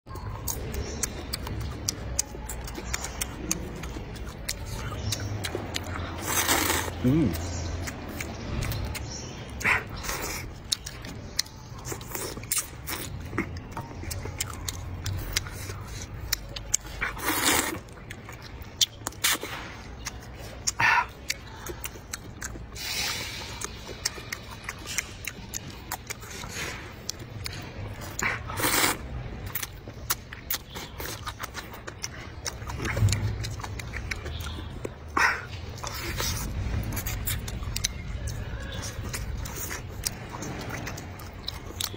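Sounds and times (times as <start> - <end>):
chewing: 0.1 - 41.9
slurping noodles: 6.2 - 7.4, 17.0 - 17.8, 28.1 - 29.0.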